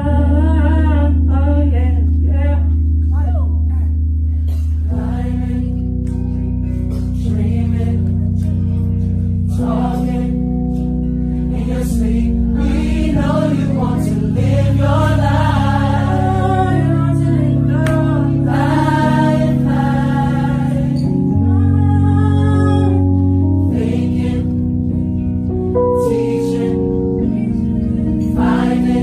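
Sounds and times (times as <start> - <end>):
gospel choir singing: 4.8 - 29.0.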